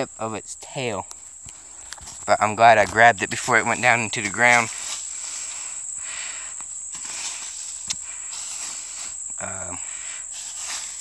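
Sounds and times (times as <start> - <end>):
insects trilling: 0.0 - 11.0
dry hay rustling: 1.2 - 6.0, 6.7 - 9.6, 10.3 - 11.0.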